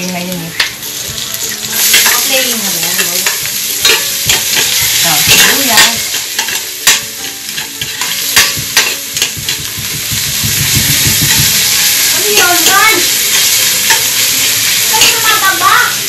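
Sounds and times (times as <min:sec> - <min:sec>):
onion sizzling in hot oil: 0:00.0 - 0:16.0.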